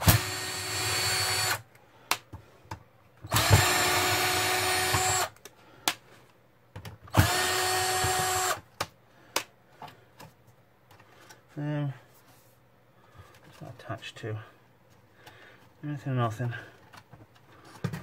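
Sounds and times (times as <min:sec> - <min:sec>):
cordless drill motor running: 0:00.0 - 0:01.6, 0:03.3 - 0:05.3, 0:07.1 - 0:08.6.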